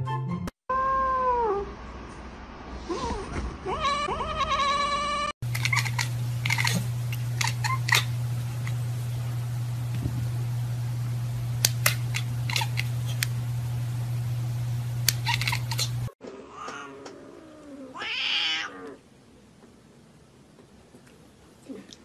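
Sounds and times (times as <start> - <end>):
cat yowling: 0.7 - 1.7, 3.7 - 5.3, 15.3 - 19.0
steady low hum: 5.4 - 16.2.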